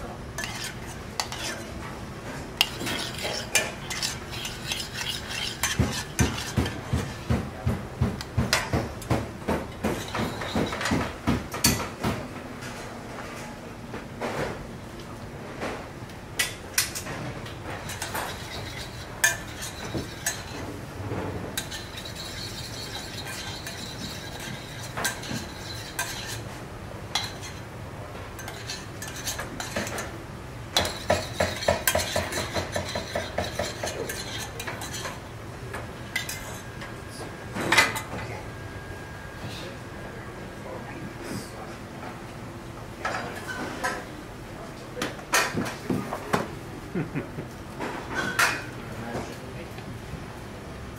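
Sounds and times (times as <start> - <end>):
kitchen background noise: 0.0 - 50.9
spoon stirring in a pan: 0.4 - 1.8, 2.6 - 7.1, 17.8 - 20.7, 21.5 - 26.5, 27.1 - 27.7, 28.4 - 30.1, 30.8 - 35.2, 36.1 - 36.6.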